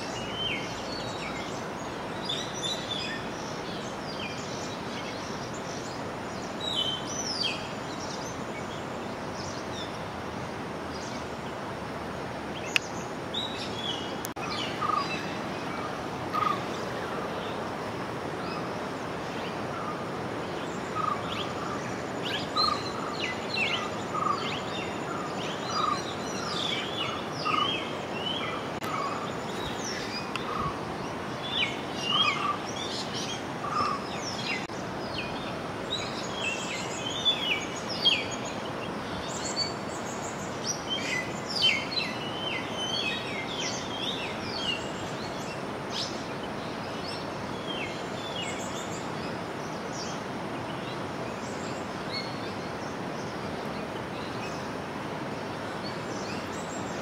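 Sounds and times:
steady background hiss: 0.0s - 57.0s
birds chirping: 12.5s - 54.8s.

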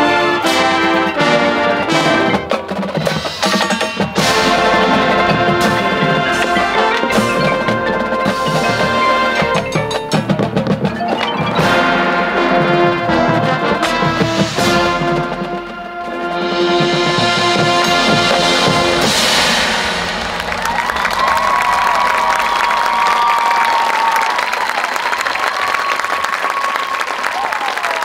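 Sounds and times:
marching band playing: 0.0s - 25.2s
mallet percussion bell-like tones: 3.1s - 12.8s.

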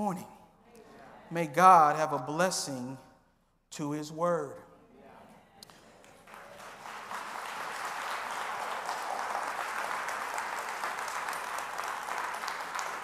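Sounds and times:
crowd clapping: 5.6s - 13.0s.

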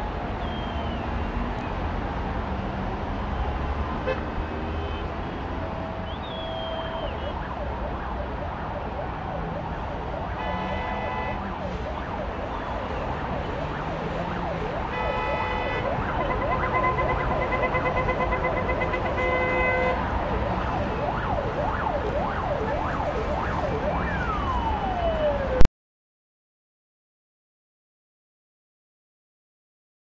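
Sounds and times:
city traffic rumble: 0.0s - 25.7s
car horns blaring: 4.0s - 7.3s, 10.4s - 11.5s, 14.8s - 20.1s
emergency siren yelping: 5.5s - 25.7s.

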